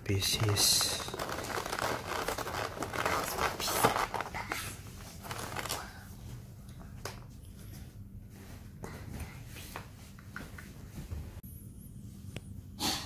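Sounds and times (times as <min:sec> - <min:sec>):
plastic packaging crinkling: 0:00.2 - 0:06.0.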